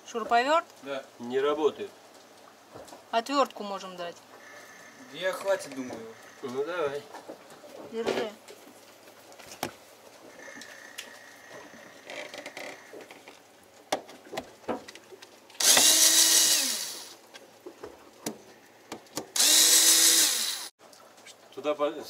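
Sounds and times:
faint handling clicks and knocks: 11.6s - 15.9s
cordless drill motor whining: 15.6s - 17.1s, 19.4s - 20.7s.

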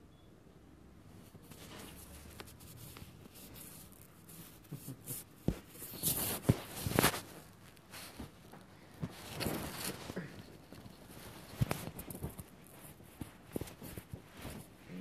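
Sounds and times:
phone handling rubbing and rustling: 1.3s - 14.9s.

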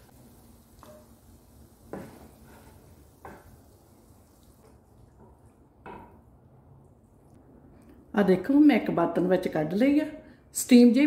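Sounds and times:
wooden spatula scraping a pan: 1.9s - 3.7s.

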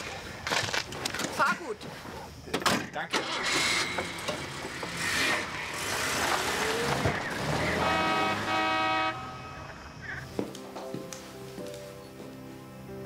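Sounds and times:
car engine pulling away: 3.1s - 10.0s.

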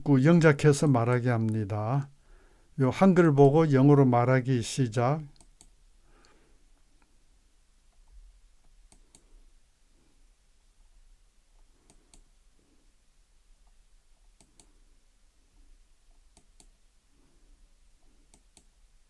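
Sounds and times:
faint low hum: 0.0s - 19.0s
computer mouse clicks: 5.3s - 6.4s, 7.9s - 9.3s, 11.8s - 12.3s, 14.4s - 14.8s, 16.3s - 16.8s, 18.2s - 18.8s.

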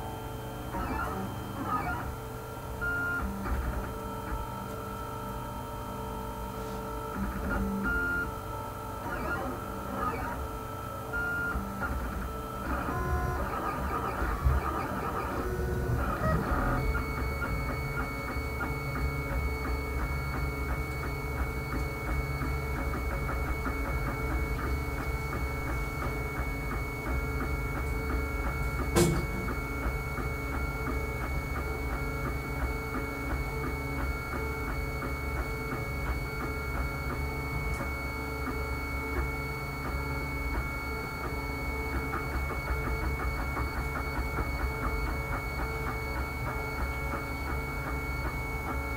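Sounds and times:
stepper motors whining: 11.2s - 48.6s
sharp click: 28.9s - 29.6s.

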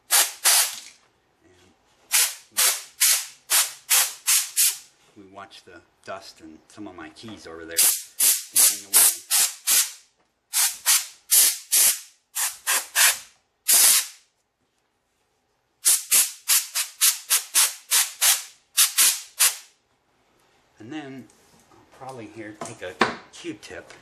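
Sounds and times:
air blow gun hissing puffs: 7.8s - 14.1s.

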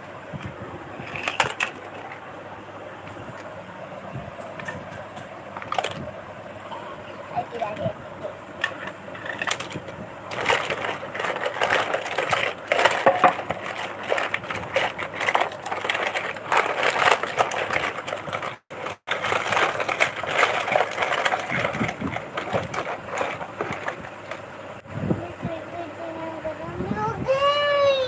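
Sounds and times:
plastic toy cars clattering: 1.0s - 2.3s, 4.5s - 6.0s, 8.6s - 24.5s.

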